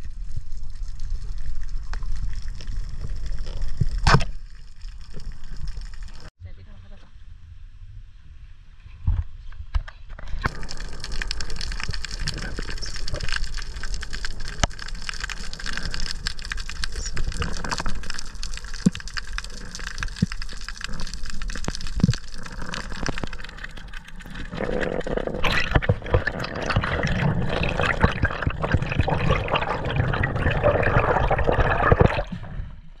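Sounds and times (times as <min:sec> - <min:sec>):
water splashing and lapping: 0:10.4 - 0:32.6.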